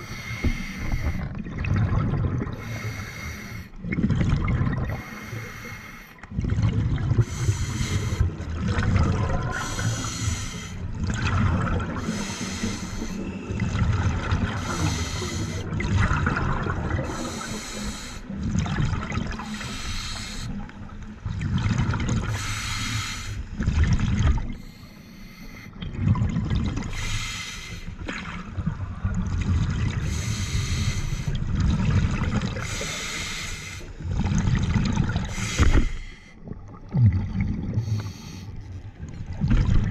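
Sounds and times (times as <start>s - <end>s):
hissing regulator breaths: 0.0s - 1.2s, 2.6s - 3.7s, 9.6s - 10.8s, 12.0s - 13.5s, 14.6s - 15.6s, 17.2s - 18.3s, 19.4s - 20.7s, 22.3s - 23.5s, 27.0s - 27.9s, 30.1s - 31.4s, 32.6s - 33.9s, 35.3s - 36.4s
rumbling exhaust bubbles: 0.0s - 2.6s, 13.5s - 17.7s.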